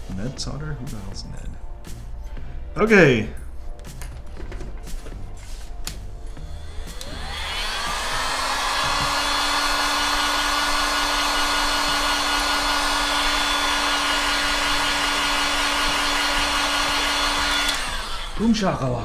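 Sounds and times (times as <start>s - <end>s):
heat gun whining: 6.3s - 19.0s.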